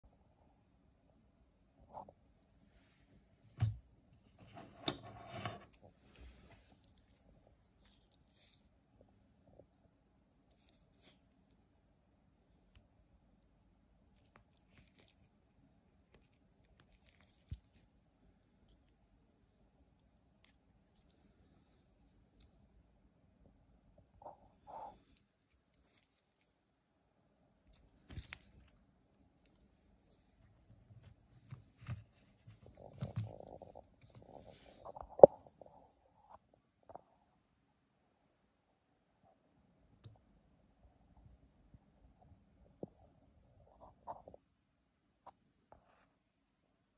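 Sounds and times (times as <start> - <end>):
soft rubbing: 29.4 - 35.0.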